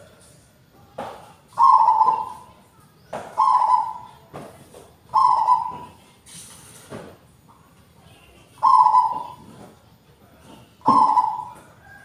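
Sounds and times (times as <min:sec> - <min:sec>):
dove cooing: 0:01.5 - 0:02.6, 0:03.3 - 0:04.2, 0:05.1 - 0:06.1, 0:08.5 - 0:09.7, 0:10.8 - 0:12.0.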